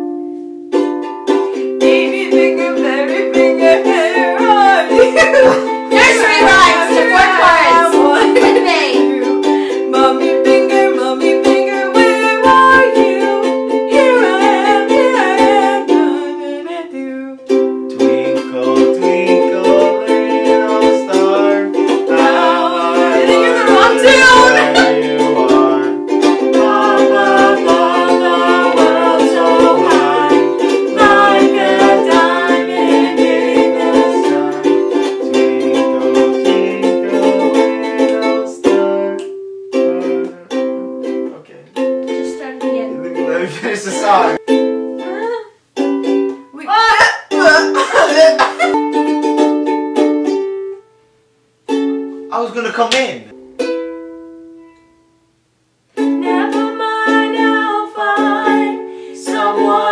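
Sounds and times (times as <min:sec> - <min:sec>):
ukulele strumming: 0:00.0 - 0:59.9
people singing pop songs: 0:05.9 - 0:08.6, 0:19.6 - 0:38.9, 0:56.4 - 0:59.9.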